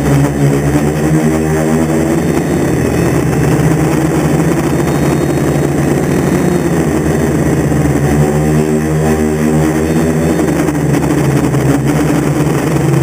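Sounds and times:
quadcopter motors humming: 0.0s - 13.0s.

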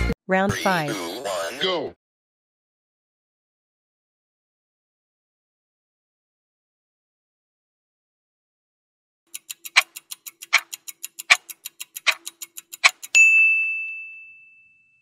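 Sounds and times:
clock ticking fast: 9.3s - 13.2s
bell ding: 13.1s - 15.0s.

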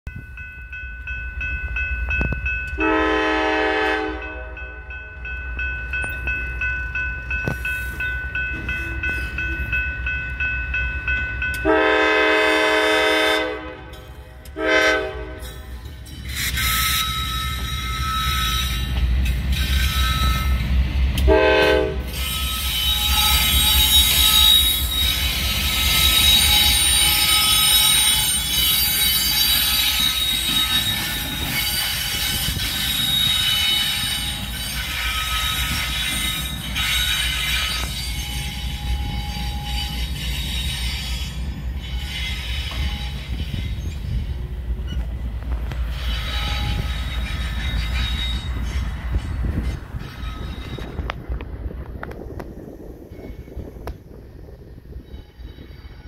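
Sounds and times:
crossing warning bell ringing: 0.1s - 51.2s
train rolling over crossing: 0.1s - 56.0s
locomotive air horn blasts: 2.8s - 4.8s, 11.6s - 15.6s, 21.2s - 25.1s.

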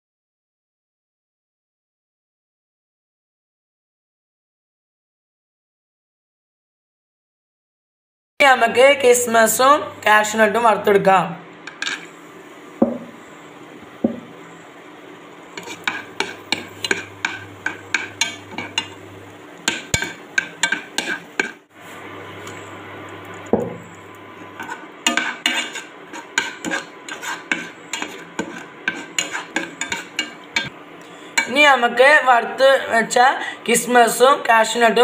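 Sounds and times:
low steady hum: 8.4s - 35.0s
spoon scraping a pan: 11.6s - 12.2s, 15.5s - 21.7s, 23.3s - 30.7s, 31.3s - 31.6s.

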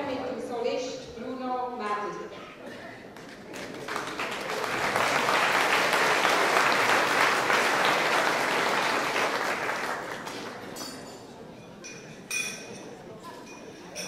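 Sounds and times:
audience applauding: 3.1s - 10.8s.

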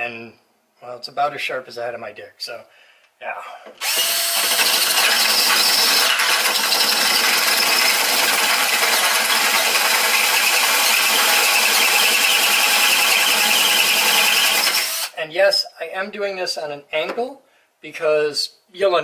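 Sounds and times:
drill bit squealing through steel: 3.8s - 15.1s
cordless drill running under load: 3.8s - 15.2s.

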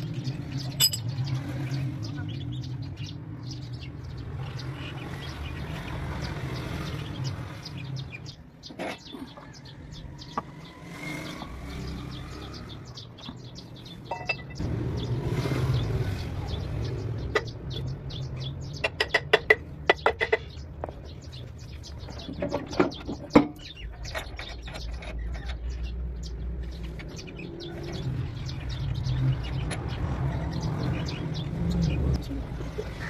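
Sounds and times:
hammer tapping metal hub: 0.8s - 1.1s
metal parts clinking: 0.8s - 1.1s.

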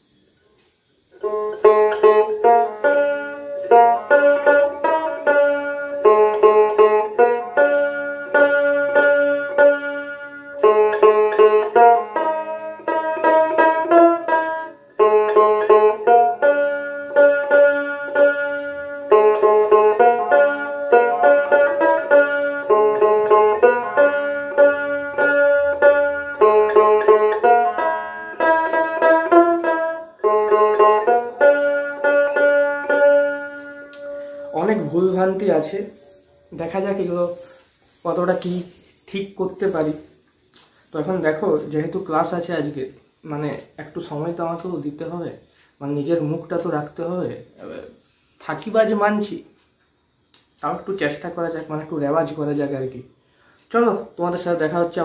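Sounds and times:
plucked lute melody: 1.1s - 38.5s.

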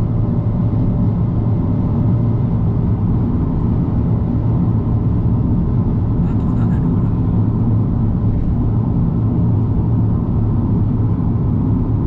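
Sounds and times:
car interior road rumble: 0.0s - 12.0s.

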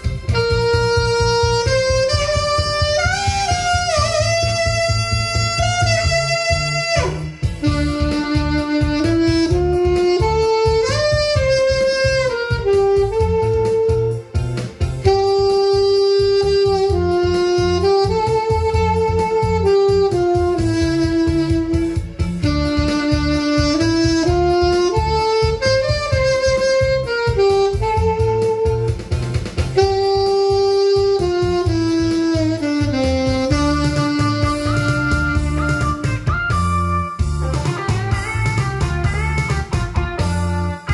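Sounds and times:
bass and drum backing beat: 0.0s - 40.9s
saxophone melody: 0.0s - 40.9s.

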